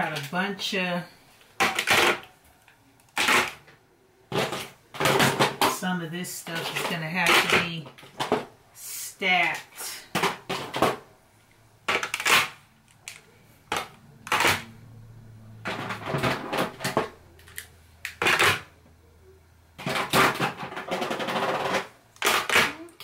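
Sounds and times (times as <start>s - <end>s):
plastic containers knocking and clicking: 4.3s - 5.8s, 6.6s - 8.5s, 9.5s - 11.0s, 11.9s - 12.5s, 13.1s - 14.7s, 15.6s - 18.7s, 19.8s - 22.8s.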